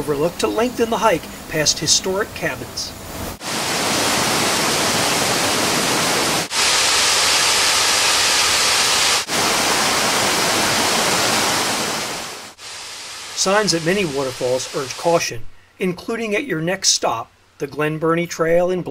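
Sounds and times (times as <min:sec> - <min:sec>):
waterfall rushing: 0:03.4 - 0:15.3.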